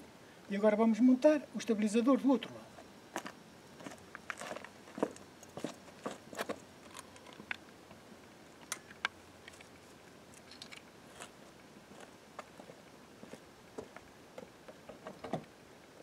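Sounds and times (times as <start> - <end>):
footsteps on gravel: 3.1 - 7.4, 11.1 - 14.0.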